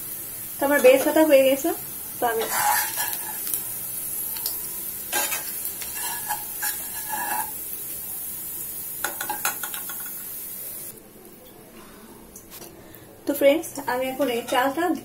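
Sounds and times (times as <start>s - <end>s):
onions sizzling in hot oil: 0.0s - 11.0s, 13.3s - 15.0s
metal skimmer scraping a pan: 2.4s - 3.5s, 5.1s - 7.5s.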